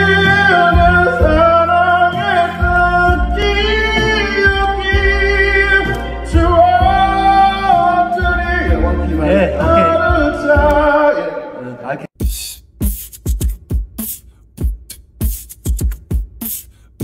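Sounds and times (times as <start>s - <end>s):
man singing into microphone: 0.0s - 11.6s.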